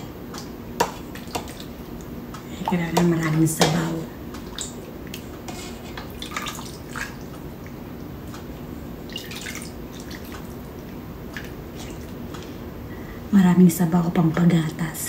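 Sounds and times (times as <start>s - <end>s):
broth splashing into a bowl: 9.0s - 12.2s.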